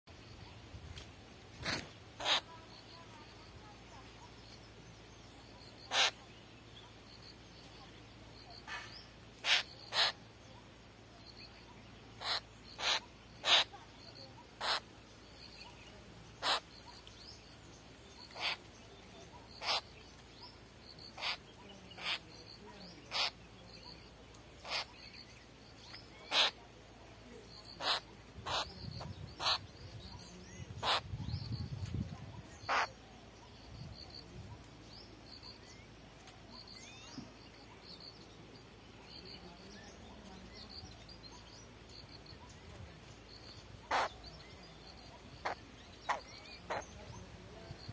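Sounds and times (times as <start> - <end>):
bird harsh call notes: 1.6 - 2.9, 5.8 - 6.3, 8.6 - 10.3, 12.1 - 13.8, 14.6 - 14.9, 16.4 - 16.9, 18.2 - 18.7, 19.5 - 20.0, 21.1 - 22.4, 23.0 - 23.4, 24.6 - 25.2, 25.8 - 26.6, 27.8 - 31.6, 32.5 - 33.0, 43.4 - 47.0.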